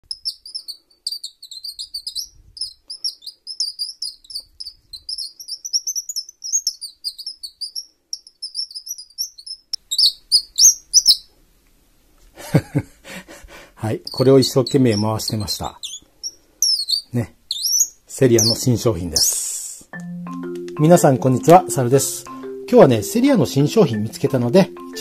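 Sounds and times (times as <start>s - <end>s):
wooden bird call squeaky chirps: 0.0s - 11.3s, 14.0s - 19.4s.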